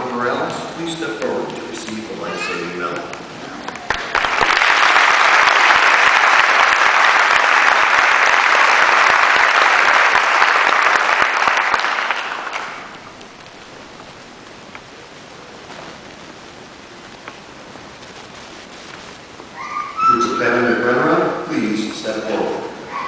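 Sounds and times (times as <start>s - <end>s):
audience applauding: 2.6s - 13.6s.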